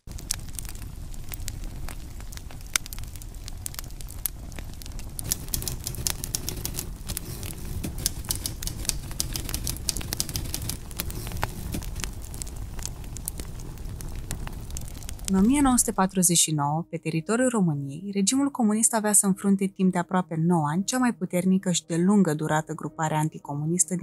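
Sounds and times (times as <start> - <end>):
wood fire crackling and popping: 0.0 - 16.3.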